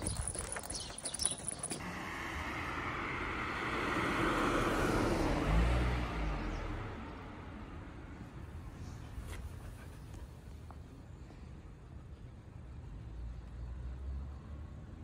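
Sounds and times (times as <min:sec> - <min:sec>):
car passing by: 0:01.8 - 0:08.2.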